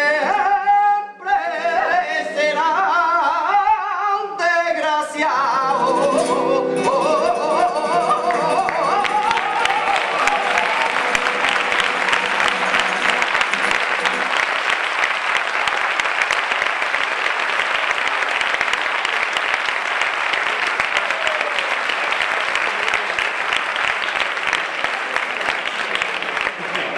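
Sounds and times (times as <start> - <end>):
audience applauding: 7.6 - 26.9.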